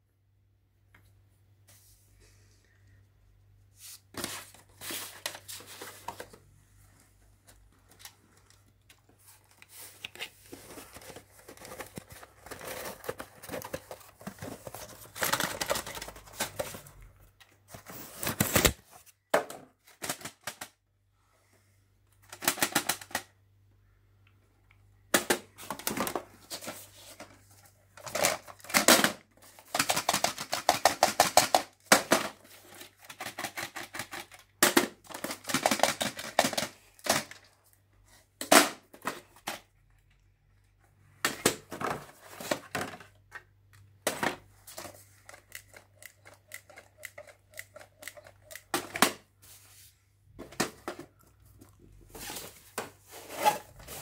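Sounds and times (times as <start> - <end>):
plastic cassettes knocking together: 10.6 - 16.8, 18.2 - 20.8, 22.2 - 23.4, 25.1 - 26.8, 28.0 - 37.5, 41.2 - 49.3.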